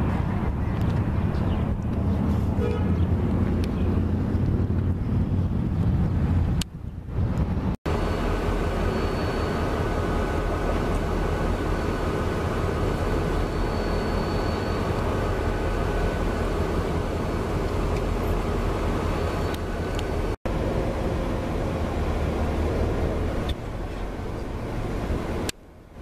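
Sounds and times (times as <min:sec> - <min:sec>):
distant diesel locomotive rumble: 0:00.0 - 0:26.0
faint high whine: 0:07.9 - 0:16.5.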